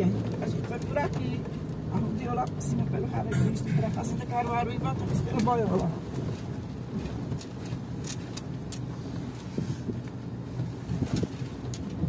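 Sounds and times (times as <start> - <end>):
engine and road rumble: 0.0 - 12.0.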